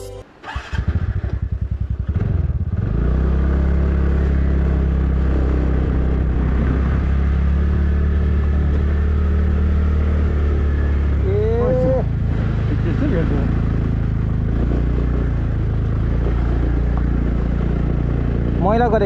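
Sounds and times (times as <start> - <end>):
motorcycle engine starting: 0.2 - 11.5.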